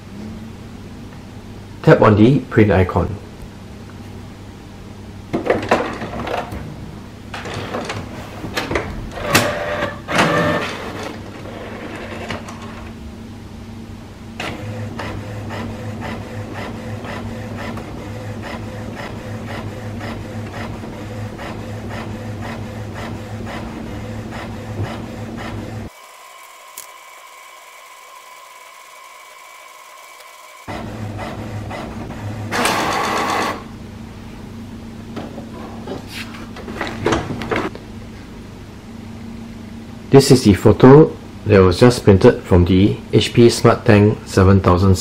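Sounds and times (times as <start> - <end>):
printer clicks and whirs: 8.7 - 12.8, 14.4 - 33.6
printer printing rhythmically: 9.2 - 12.4, 14.4 - 33.7.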